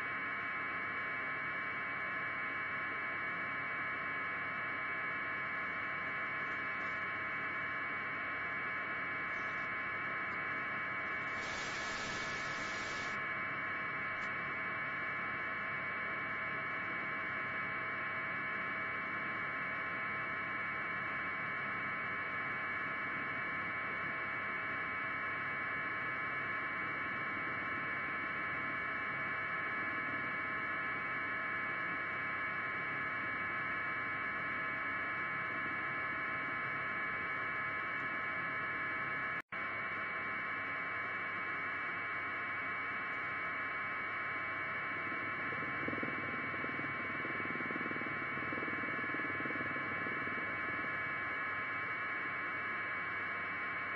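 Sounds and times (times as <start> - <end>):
electrical hum and hiss: 5.5 - 14.5
burst of static: 11.2 - 13.2.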